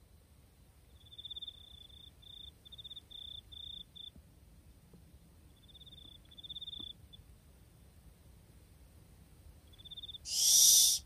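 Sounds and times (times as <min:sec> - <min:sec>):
insect chirping trills: 0:00.9 - 0:04.2, 0:05.5 - 0:07.3, 0:09.6 - 0:11.0.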